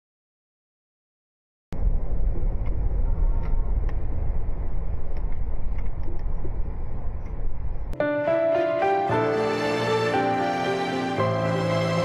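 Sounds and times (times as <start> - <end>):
car road and engine rumble: 1.8 - 8.0.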